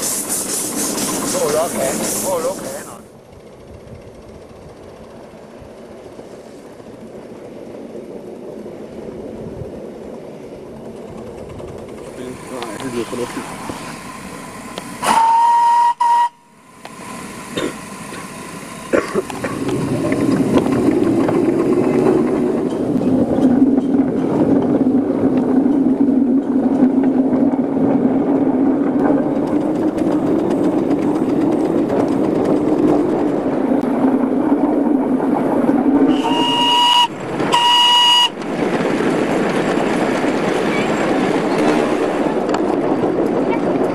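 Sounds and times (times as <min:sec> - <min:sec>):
steam engine hiss and rumble: 0:00.0 - 0:43.9
steam whistle blast: 0:15.0 - 0:16.5, 0:36.1 - 0:38.4.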